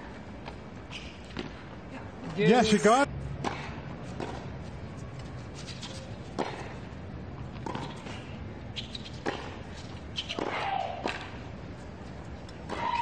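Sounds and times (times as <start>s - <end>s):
tennis ball hit by rackets: 3.4s - 4.4s, 6.3s - 6.8s, 9.2s - 9.6s, 10.3s - 11.4s, 12.6s - 13.0s.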